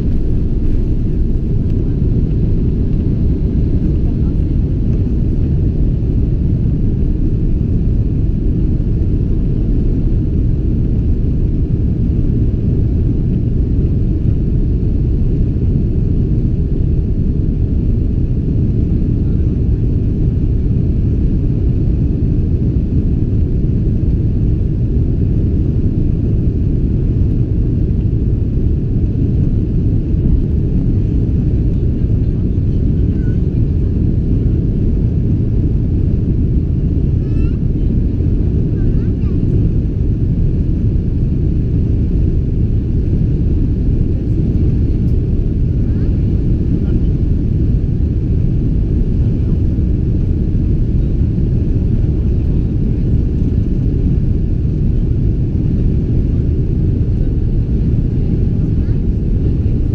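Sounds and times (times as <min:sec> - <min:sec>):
jet engines low rumble: 0:00.0 - 0:59.9.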